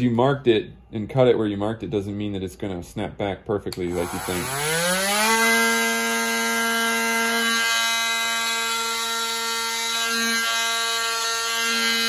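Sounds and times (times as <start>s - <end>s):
oscillating multi-tool buzzing: 3.9s - 12.0s.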